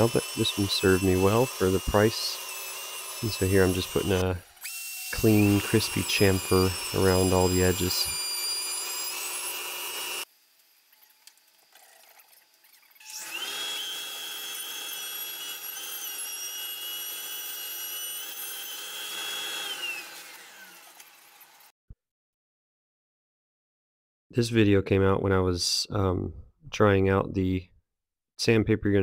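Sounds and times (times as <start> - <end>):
router cutting wood: 0.0 - 10.3, 13.0 - 21.7
shop vacuum whining: 0.0 - 10.3, 13.0 - 16.2, 18.1 - 21.7.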